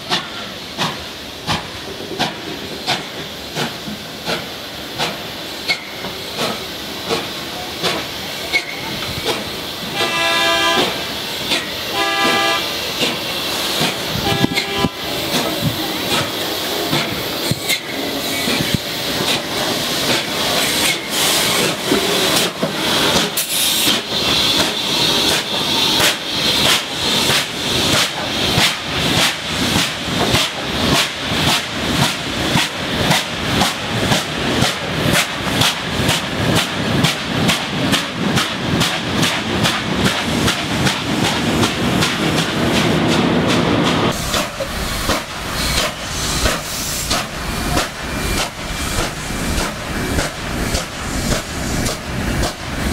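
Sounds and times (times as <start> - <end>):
steam hissing: 0.0 - 52.9.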